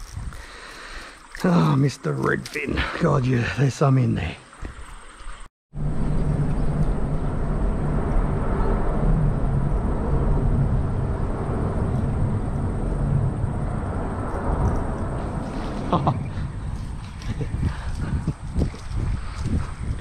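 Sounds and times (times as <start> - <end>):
road traffic rumble: 5.7 - 20.0.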